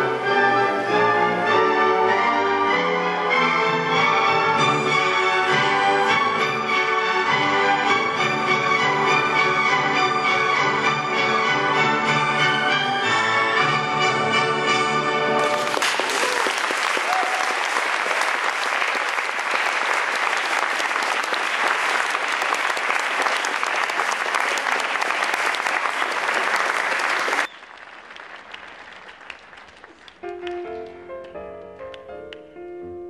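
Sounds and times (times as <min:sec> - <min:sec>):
music: 0:00.0 - 0:15.8, 0:30.1 - 0:33.0
audience applauding: 0:15.4 - 0:31.3
quiet piano music: 0:30.2 - 0:33.0.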